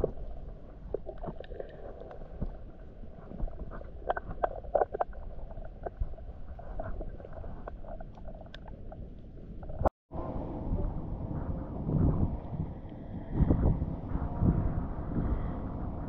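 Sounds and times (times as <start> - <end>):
underwater rumble of water: 0.0 - 16.0
underwater clicks and knocks: 0.9 - 9.9.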